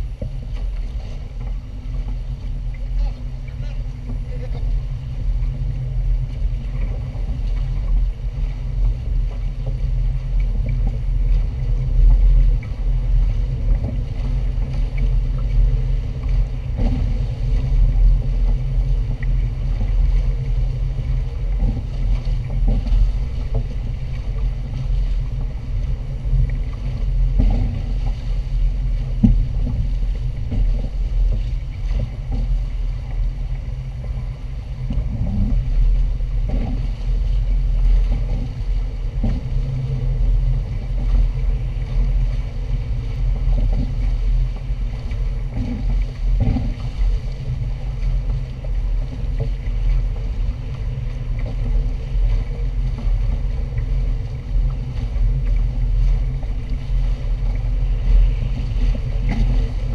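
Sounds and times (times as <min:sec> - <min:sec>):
water rushing along hulls: 0:00.0 - 0:59.9
wind buffeting microphone: 0:00.0 - 0:59.9.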